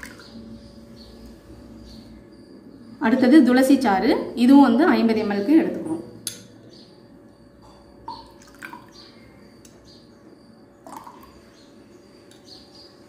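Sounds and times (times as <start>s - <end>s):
liquid dripping into a glass: 8.0s - 9.8s, 10.8s - 11.4s.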